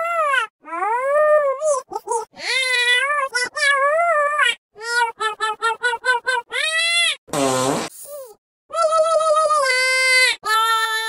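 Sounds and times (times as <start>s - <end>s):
fart noise: 7.3s - 8.1s.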